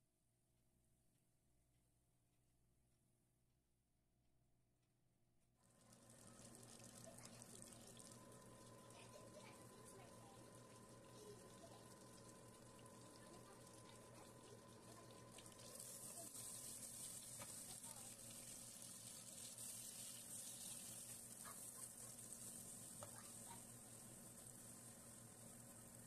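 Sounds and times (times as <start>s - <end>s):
vegetables sizzling in oil: 5.8s - 26.0s.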